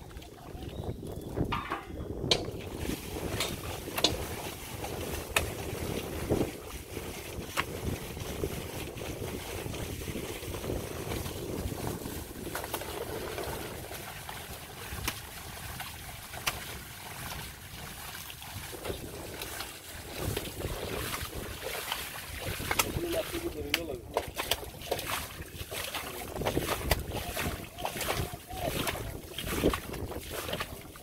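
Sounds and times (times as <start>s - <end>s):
wind rumbling on microphone: 0.0s - 31.0s.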